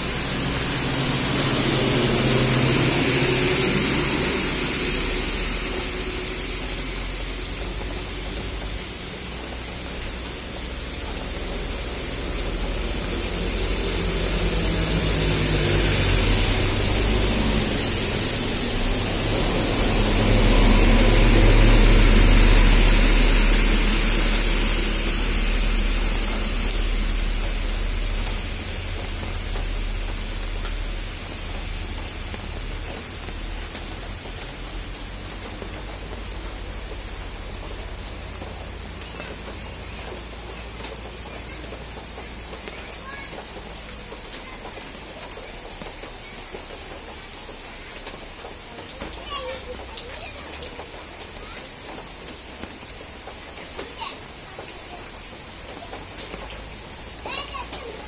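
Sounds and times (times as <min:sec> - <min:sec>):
deep low rumble: 0:00.0 - 0:41.2
steady rain: 0:00.0 - 0:58.0.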